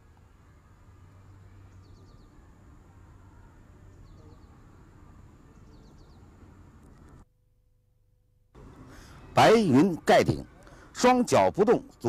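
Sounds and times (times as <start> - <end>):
small birds chirping: 0.0 - 7.2.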